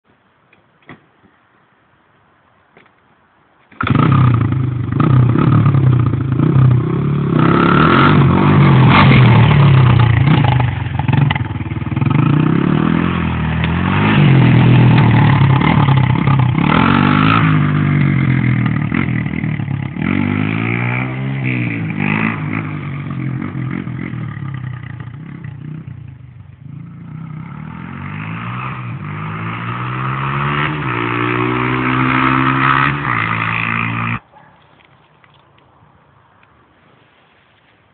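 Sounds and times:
dirt bike engine revving: 3.8s - 26.0s, 26.6s - 34.2s.

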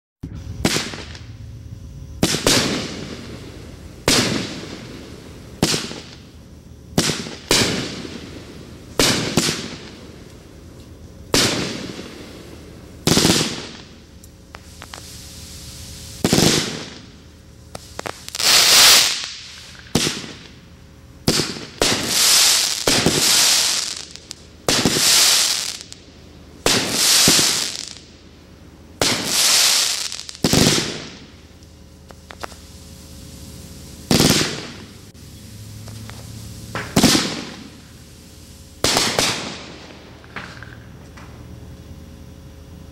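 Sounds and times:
hissing crackling firework tail: 0.2s - 41.5s
firework bangs: 0.5s - 1.5s, 2.2s - 10.2s, 11.3s - 20.6s, 21.2s - 26.0s, 26.6s - 28.1s, 29.0s - 31.4s, 34.0s - 35.1s, 35.8s - 40.9s.

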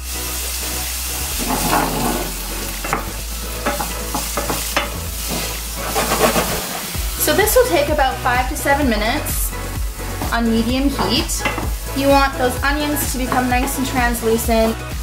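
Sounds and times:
vegetables sizzling in oil: 0.0s - 15.0s
wooden spoon scraping pan: 1.4s - 7.0s.

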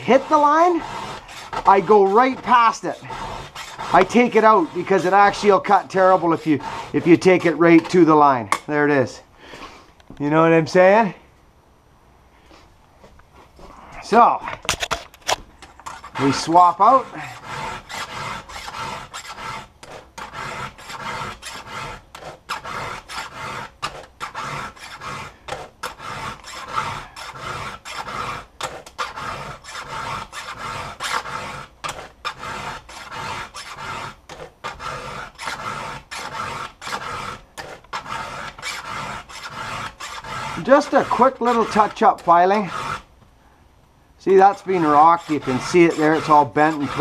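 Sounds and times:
file rasping on saw chain: 0.0s - 8.7s, 15.6s - 43.1s, 44.3s - 47.0s.

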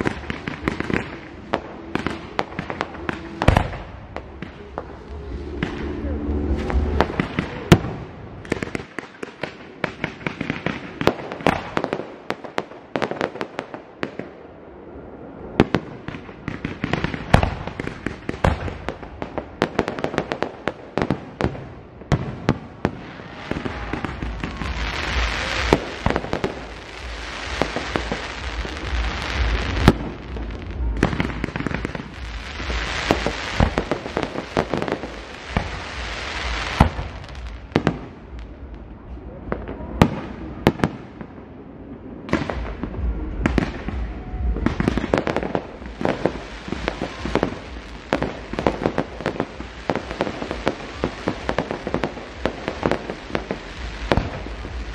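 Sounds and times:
deep rumble: 0.0s - 8.6s, 23.6s - 40.6s, 41.3s - 50.6s.

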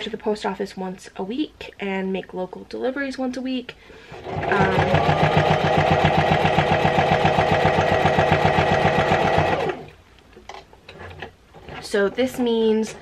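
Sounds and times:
electric sewing machine stitching: 4.1s - 10.0s.

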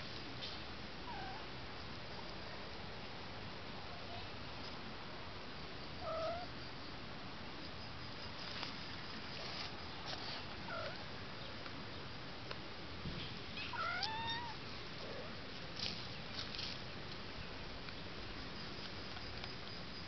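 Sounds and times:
cat meowing: 6.0s - 6.5s, 13.7s - 14.6s.

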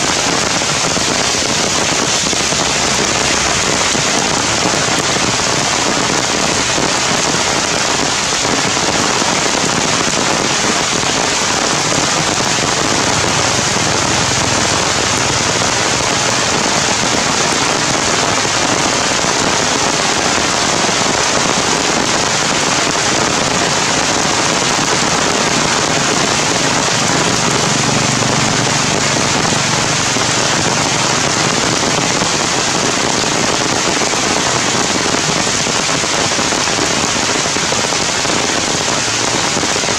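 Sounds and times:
heavy rain hissing: 0.0s - 39.9s.

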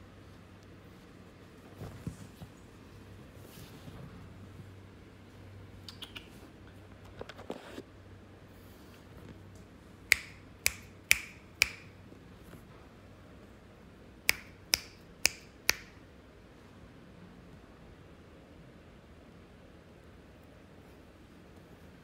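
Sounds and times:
fingers snapping: 5.9s - 6.3s, 10.1s - 11.9s, 14.3s - 16.0s.

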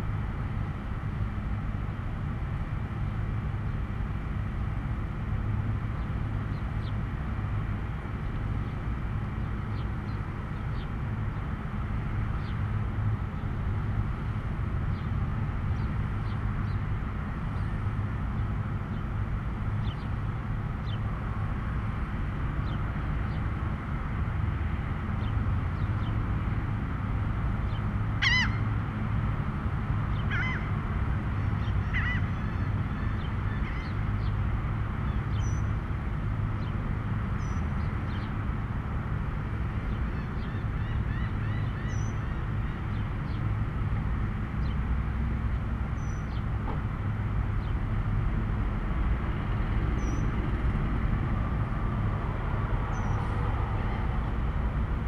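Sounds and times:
road traffic rumble: 0.0s - 55.0s
harsh bird calls: 27.7s - 28.7s, 30.1s - 30.8s, 31.4s - 34.4s, 39.9s - 43.5s
bird chirps: 39.9s - 43.4s, 46.0s - 46.4s.

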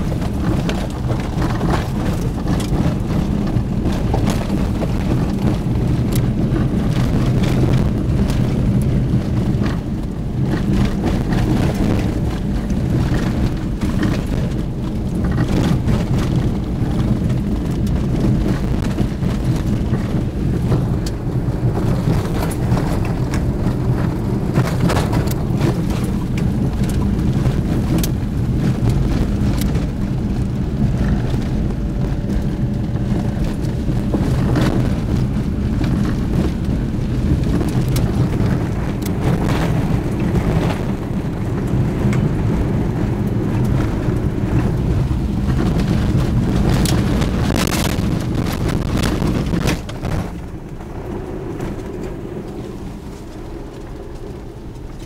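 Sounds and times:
engine and road drone: 0.0s - 55.0s
knocks and rattles over bumps: 0.0s - 55.0s.

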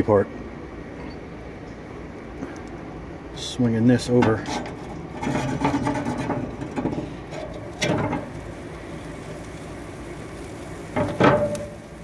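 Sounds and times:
metal clank on grill grate: 4.0s - 9.6s, 10.5s - 12.0s
steak searing hiss: 7.0s - 12.0s.

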